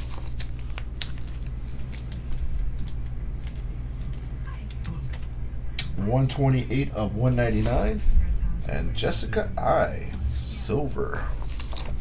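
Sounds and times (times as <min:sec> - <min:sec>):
plastic sleeve rustling: 0:00.0 - 0:05.3, 0:11.2 - 0:12.0
steady low hum: 0:00.0 - 0:12.0.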